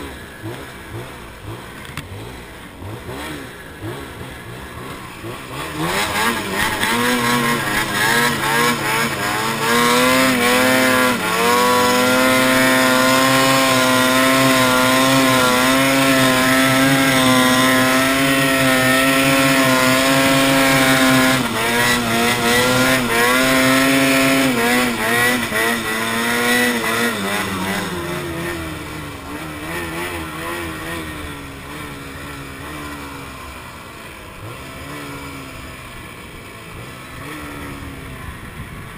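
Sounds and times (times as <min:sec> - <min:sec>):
snowmobile engine revving high: 0:00.0 - 0:38.9.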